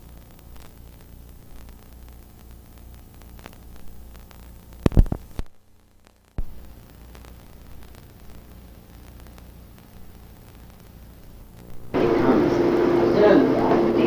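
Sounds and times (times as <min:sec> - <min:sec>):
loud crackling thump: 0:00.0 - 0:05.6, 0:06.4 - 0:12.0
tape hiss and pulsing hum: 0:00.0 - 0:14.0.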